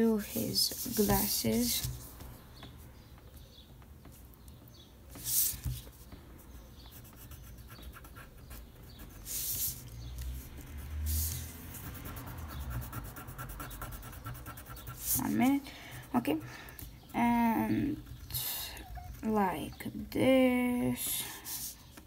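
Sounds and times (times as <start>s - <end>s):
pencil scratching on paper: 0.1s - 2.1s, 6.8s - 9.8s, 10.6s - 19.8s.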